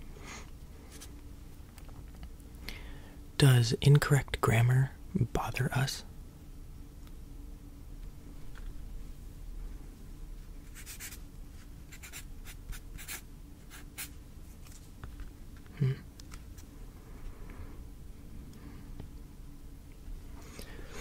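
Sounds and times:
writing on paper: 0:11.9 - 0:14.1.

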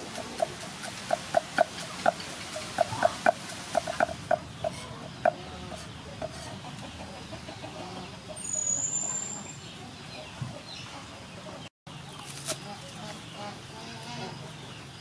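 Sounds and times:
bird calling: 0:00.0 - 0:06.5.

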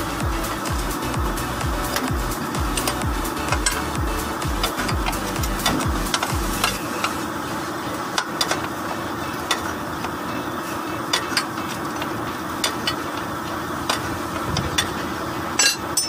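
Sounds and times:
music with deep beat: 0:00.0 - 0:07.2
steady hiss: 0:00.0 - 0:15.6.

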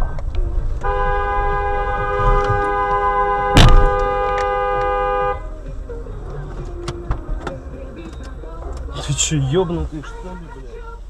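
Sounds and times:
two-tone car horn blast: 0:00.8 - 0:05.5.

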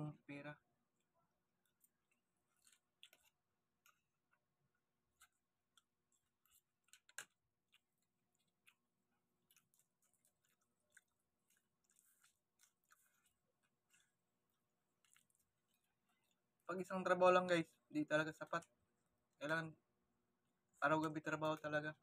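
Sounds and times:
prawn shells being peeled: 0:00.8 - 0:17.4
chewing: 0:01.0 - 0:16.7.

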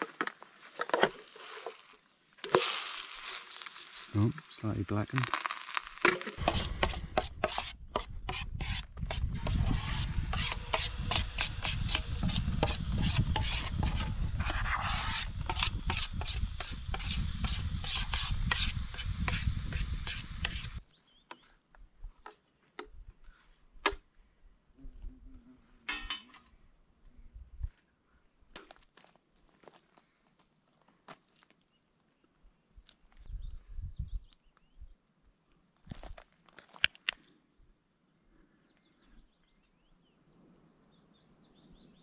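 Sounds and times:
spoon scraping a pot: 0:06.4 - 0:20.8.

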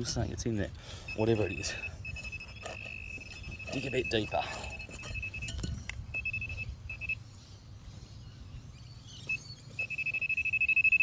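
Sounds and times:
pinpointer probe beeping: 0:01.0 - 0:07.2, 0:09.2 - 0:11.0.

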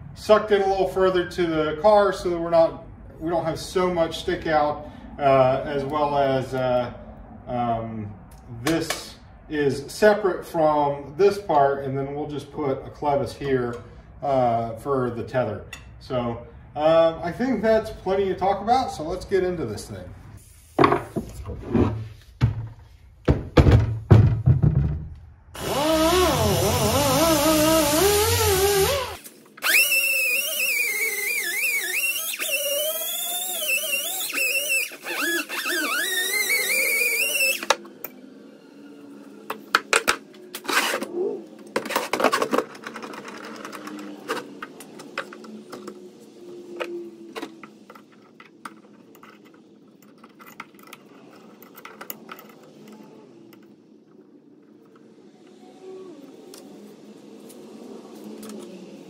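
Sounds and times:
electric power tool on metal: 0:25.6 - 0:37.8
metal parts clanking: 0:41.8 - 0:46.0, 0:47.4 - 0:53.8.

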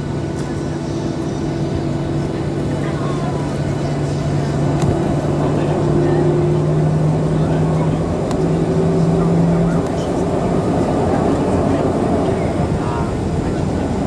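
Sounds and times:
jet engines humming in cabin: 0:00.0 - 0:14.0.

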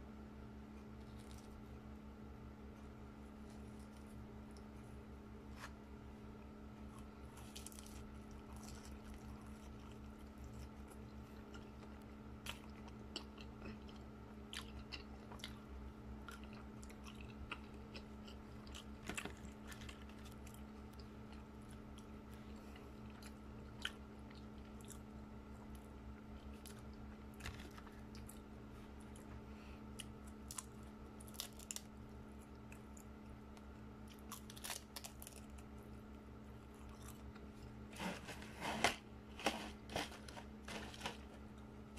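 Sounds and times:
steady background hum: 0:00.0 - 0:41.9
crisp crunches: 0:01.0 - 0:01.6, 0:06.8 - 0:14.0, 0:18.6 - 0:21.8, 0:26.4 - 0:29.3, 0:30.0 - 0:31.9, 0:34.0 - 0:35.8, 0:36.7 - 0:41.7
biting and chewing food: 0:01.0 - 0:01.7, 0:06.8 - 0:41.9.

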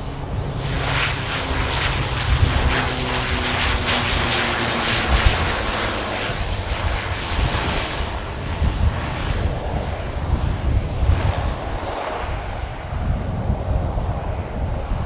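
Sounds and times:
turboprop engines running: 0:00.0 - 0:15.0
wind buffeting microphone: 0:00.0 - 0:15.0.

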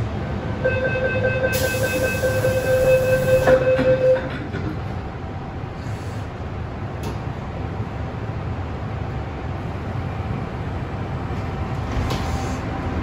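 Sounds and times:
low train rumble: 0:00.0 - 0:13.0
train door warning tone: 0:00.4 - 0:04.4.

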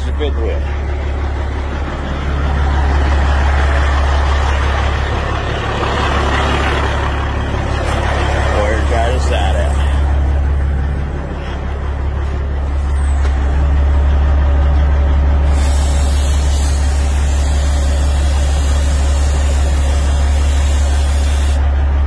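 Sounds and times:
diesel truck engine idling: 0:00.0 - 0:22.0
aerosol spray hissing: 0:15.5 - 0:21.6.

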